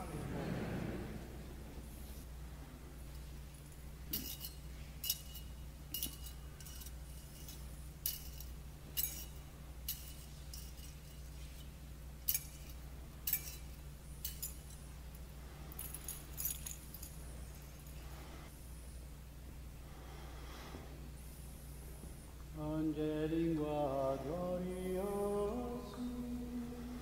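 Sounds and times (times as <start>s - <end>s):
faint low hum: 0.0s - 27.0s
light metallic clinks and jingles: 3.0s - 18.3s.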